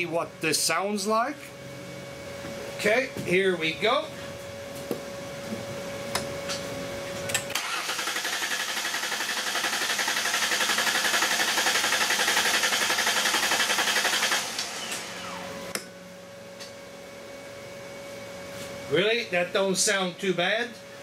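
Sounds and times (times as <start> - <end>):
engine cranking on starter: 7.5 - 15.5.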